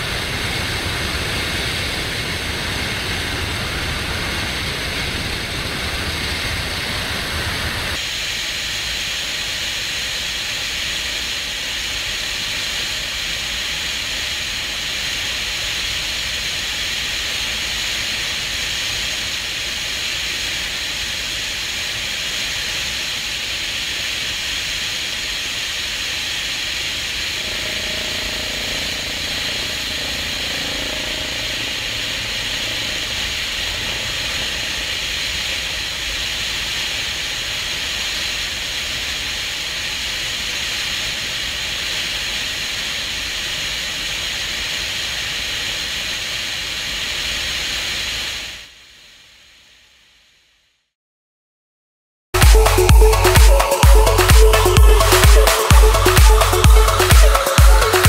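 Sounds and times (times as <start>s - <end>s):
helicopter engine and rushing air: 0.0s - 8.9s, 9.5s - 39.4s
low rumble: 26.6s - 36.2s.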